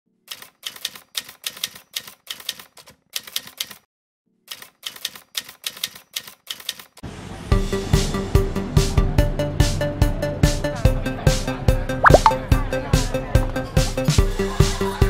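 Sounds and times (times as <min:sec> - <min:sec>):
typewriter keys clacking: 0:00.3 - 0:03.8, 0:04.5 - 0:07.0.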